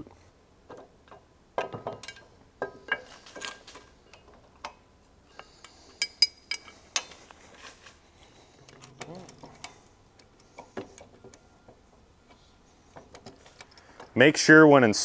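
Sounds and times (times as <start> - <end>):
metal parts clinking and knocking: 0.7 - 14.2.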